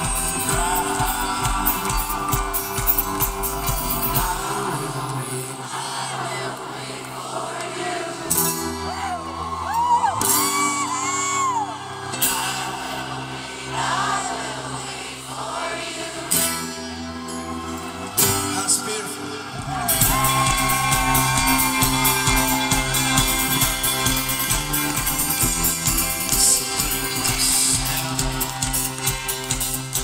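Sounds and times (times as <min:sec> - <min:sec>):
audience whooping: 0:00.0 - 0:05.1, 0:08.7 - 0:13.3, 0:17.0 - 0:29.6
live band music: 0:00.0 - 0:05.7, 0:16.3 - 0:30.0
person singing: 0:00.0 - 0:13.0, 0:18.2 - 0:30.0
fast strummed guitar: 0:19.9 - 0:30.0.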